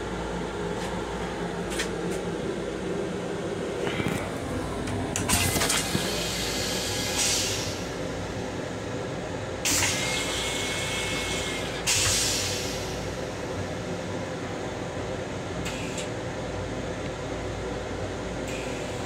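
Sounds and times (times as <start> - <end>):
toilet flush hissing surges: 5.3 - 7.9, 9.6 - 13.2.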